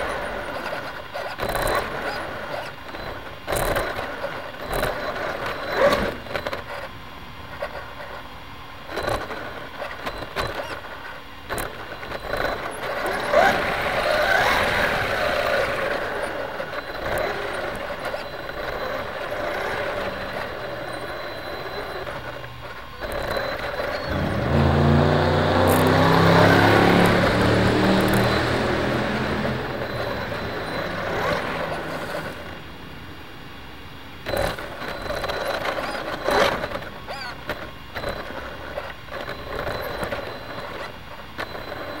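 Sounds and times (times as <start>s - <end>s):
vehicle noise: 0.0s - 42.0s
deep engine sound: 12.2s - 33.4s.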